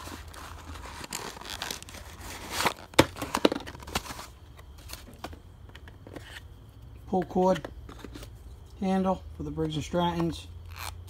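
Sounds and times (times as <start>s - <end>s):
plastic bags and boxes rustling: 0.0s - 6.4s.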